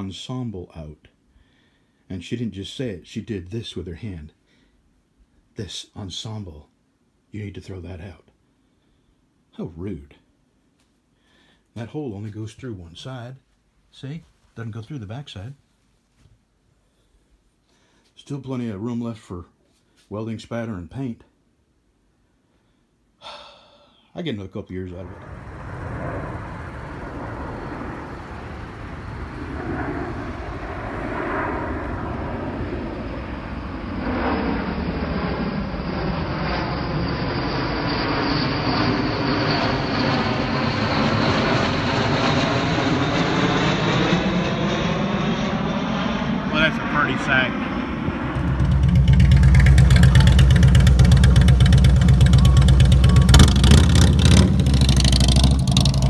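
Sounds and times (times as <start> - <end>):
jet engines rumbling overhead: 24.9 - 56.0
motorcycle engine idling and revving: 25.2 - 29.2, 48.4 - 56.0.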